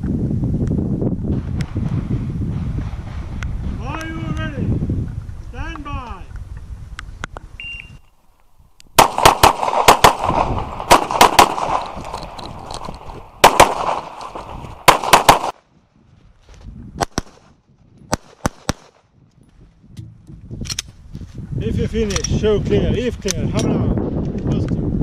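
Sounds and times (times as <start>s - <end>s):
shot timer beep: 7.6s - 8.1s
pistol shots: 9.0s - 15.6s, 18.1s - 19.0s.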